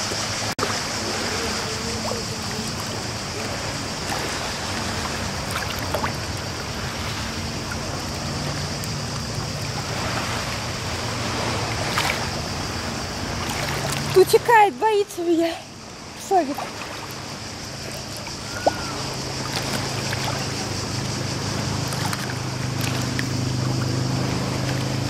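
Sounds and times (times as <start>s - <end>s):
sea water lapping: 0.0s - 25.0s
small water splashes: 0.0s - 25.0s.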